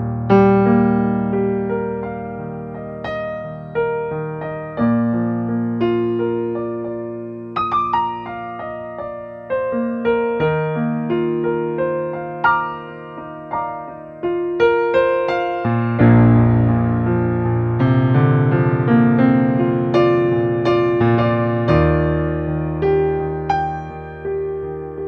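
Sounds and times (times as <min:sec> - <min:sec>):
keyboard music: 0:00.0 - 0:25.0.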